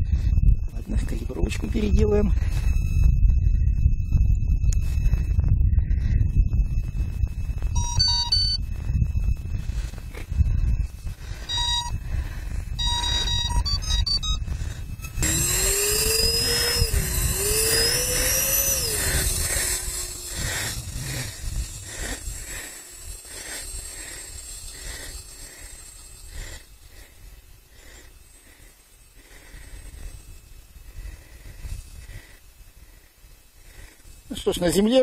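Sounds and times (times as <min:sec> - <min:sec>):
calibration beeps: 0:00.0 - 0:27.1
ducted fans whining: 0:00.0 - 0:35.0.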